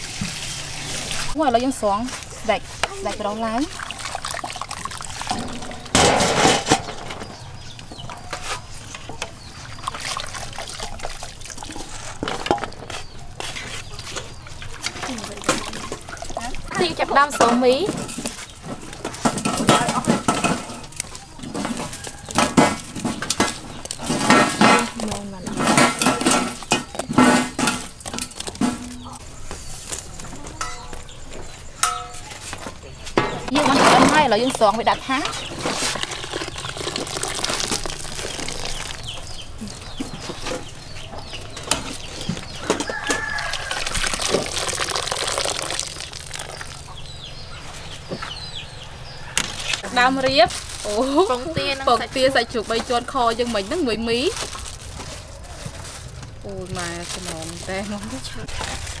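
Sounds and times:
noodles rustling in metal basin: 0.0s - 47.2s, 49.4s - 59.0s
chickens clucking: 5.2s - 37.0s, 46.1s - 50.6s
dry noodles crunching: 35.4s - 40.0s, 42.9s - 47.1s, 52.7s - 59.0s.

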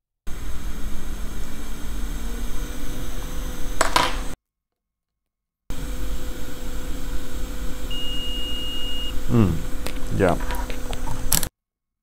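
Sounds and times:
electrical hum and hiss: 5.7s - 11.4s
multimeter continuity beep: 7.9s - 9.2s.

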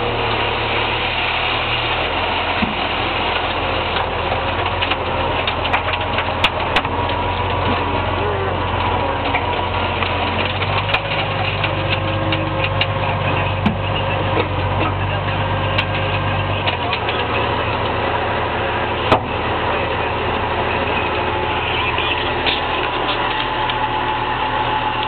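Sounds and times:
tractor diesel engine running: 0.0s - 25.0s
sharp clicks and knocks: 8.7s - 15.0s.

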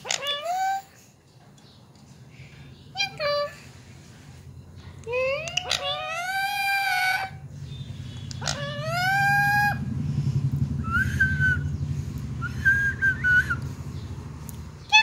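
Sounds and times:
parakeet calling: 0.0s - 0.8s, 5.2s - 9.9s
low steady hum: 0.0s - 15.0s.

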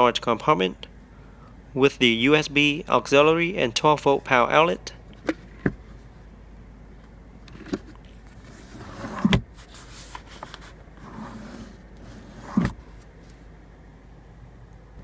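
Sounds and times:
armrest lid thud: 12.4s - 12.8s.

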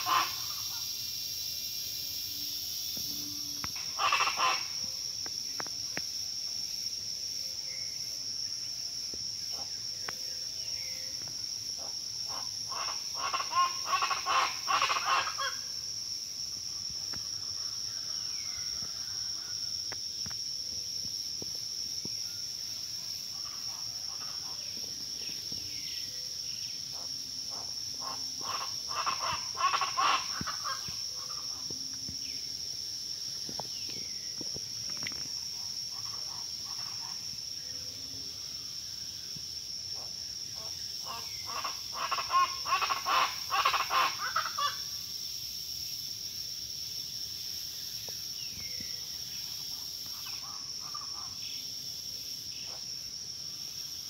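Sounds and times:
high insect drone: 0.0s - 54.0s.

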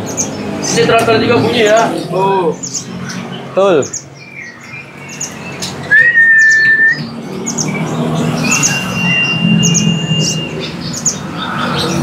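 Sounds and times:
sunbirds chirping: 0.0s - 12.0s
loud level bird whistle: 4.3s - 12.0s.

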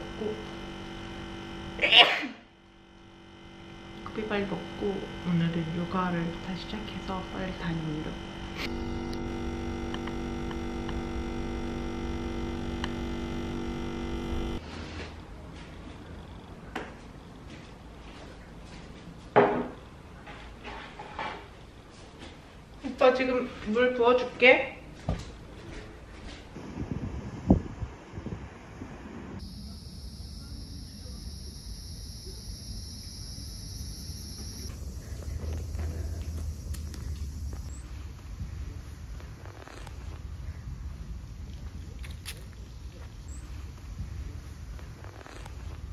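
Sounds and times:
cicadas droning: 0.0s - 14.6s, 29.4s - 45.9s
coffee machine pump buzzing: 0.0s - 14.6s, 26.6s - 37.9s.

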